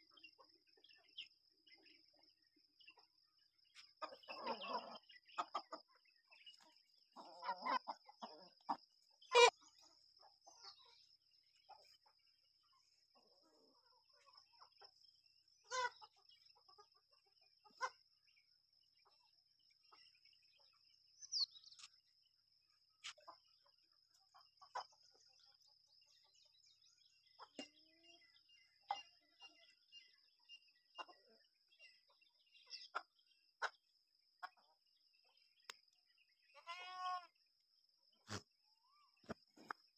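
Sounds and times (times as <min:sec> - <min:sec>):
chickens clucking: 0:00.0 - 0:20.9, 0:23.0 - 0:25.6, 0:27.1 - 0:35.4
goat bleating: 0:36.6 - 0:37.3.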